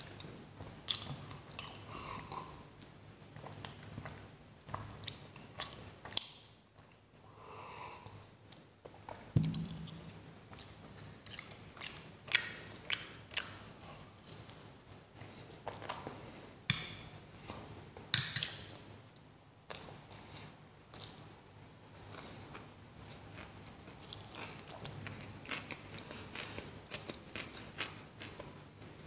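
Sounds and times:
chewing with wet mouth smacks: 0:00.9 - 0:02.5, 0:03.4 - 0:07.0, 0:09.5 - 0:16.2.

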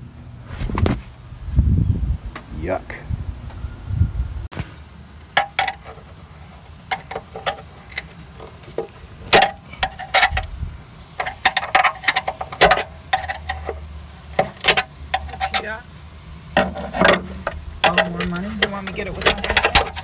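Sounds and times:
metal pick scraping and clicking: 0:06.9 - 0:10.5, 0:11.2 - 0:15.7, 0:16.6 - 0:20.0.

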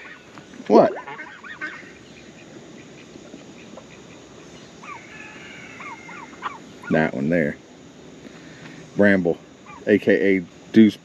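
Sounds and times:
chickens clucking and chirping: 0:00.0 - 0:10.7
chicken falling calls: 0:04.8 - 0:07.0.

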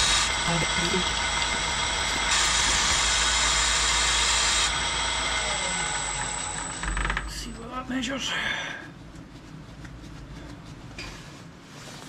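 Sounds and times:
milling machine whirring: 0:00.0 - 0:07.6.

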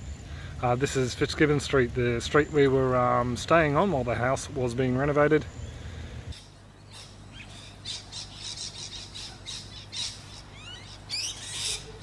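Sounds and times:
birds chirping: 0:00.0 - 0:12.0
birds calling harshly: 0:04.9 - 0:12.0.

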